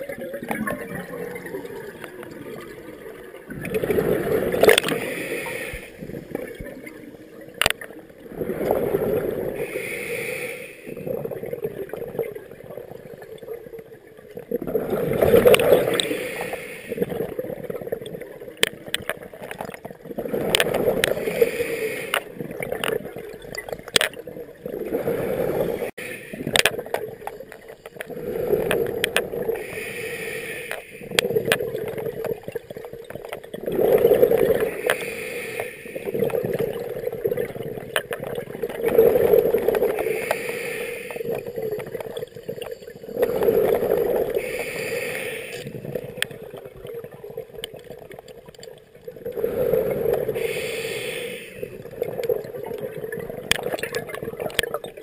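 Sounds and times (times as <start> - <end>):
diver exhaust bubbles gurgling: 0.0 - 9.9, 10.8 - 55.0
regulator hiss on inhale: 4.8 - 6.3, 9.6 - 11.0, 15.8 - 17.2, 21.1 - 22.3, 25.4 - 26.6, 28.1 - 31.3, 34.5 - 36.4, 39.8 - 41.6, 43.2 - 45.9, 49.4 - 51.9.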